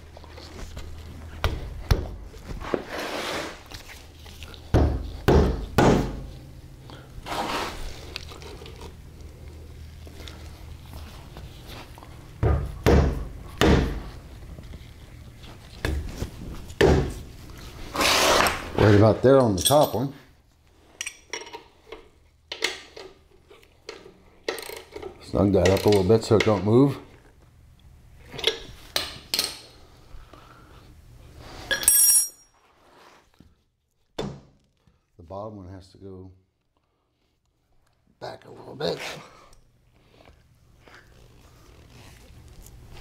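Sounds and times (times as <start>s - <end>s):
wrench clinking on bolts: 19.3s - 20.2s, 31.7s - 32.5s.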